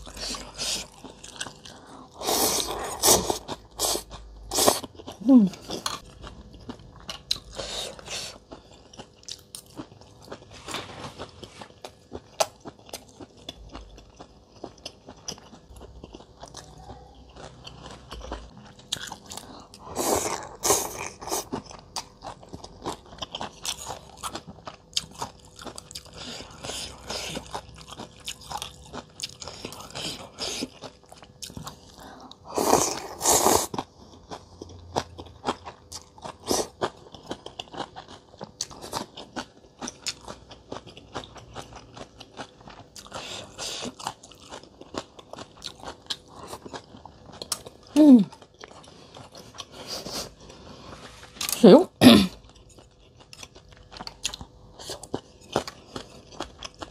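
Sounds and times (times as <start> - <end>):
loud noodle slurps: 2.2 - 4.8, 32.5 - 33.7
chewing with wet mouth clicks: 8.4 - 10.5, 21.4 - 32.4, 33.7 - 49.8, 52.4 - 56.9.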